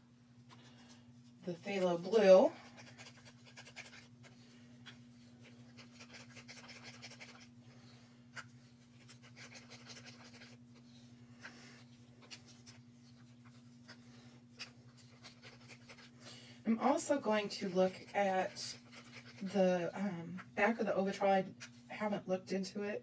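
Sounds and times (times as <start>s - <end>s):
stick stirring thick paint: 0.4s - 22.0s.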